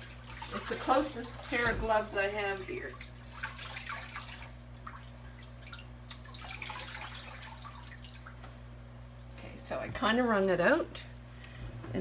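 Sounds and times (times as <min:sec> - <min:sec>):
wet fabric wrung by hand: 0:00.0 - 0:08.3
water dripping and trickling: 0:00.0 - 0:08.6
steady low hum: 0:00.0 - 0:12.0.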